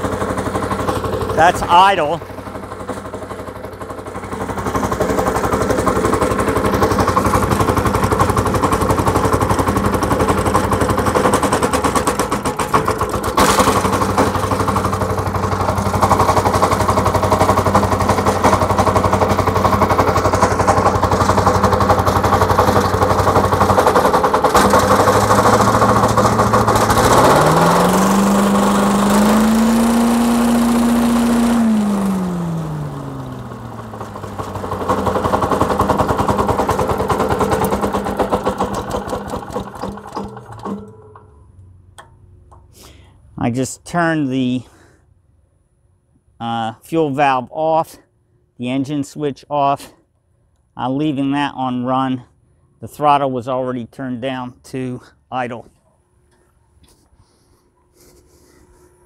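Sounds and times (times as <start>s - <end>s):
leaf blower engine running: 0.0s - 41.4s.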